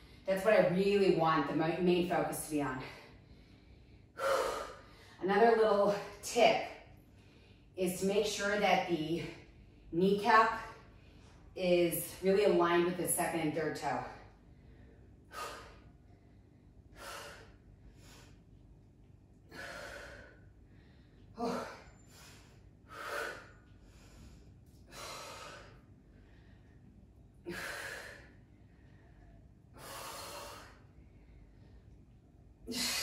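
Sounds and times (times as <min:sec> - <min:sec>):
woman breathing hard: 0:02.9 - 0:05.2, 0:14.4 - 0:18.5, 0:19.5 - 0:32.0.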